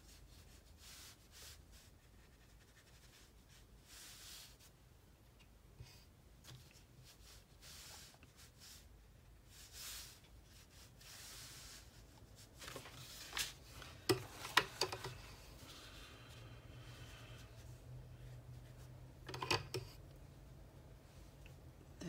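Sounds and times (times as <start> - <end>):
brush stroking paint on paper: 0.0 - 4.8, 6.4 - 14.4, 15.2 - 19.2.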